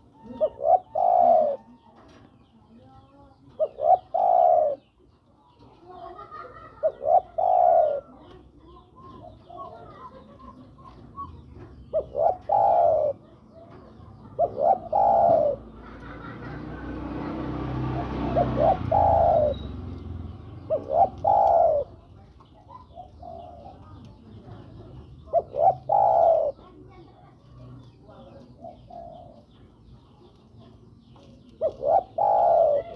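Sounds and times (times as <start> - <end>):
dove cooing: 0.0 - 2.2, 3.5 - 5.2, 5.9 - 32.9.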